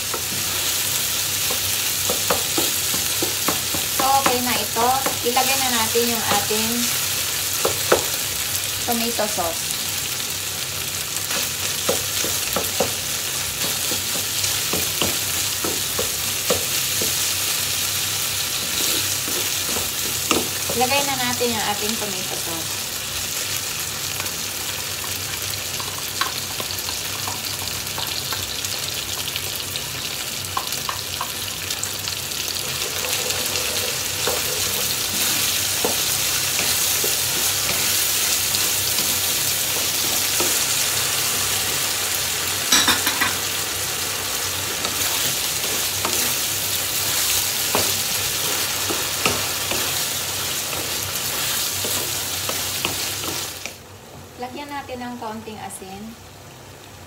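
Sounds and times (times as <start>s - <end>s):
meat sizzling in a frying pan: 0.0s - 57.0s
spatula tapping and scraping pan: 1.4s - 5.2s, 11.3s - 17.3s, 18.6s - 21.0s, 32.6s - 40.8s.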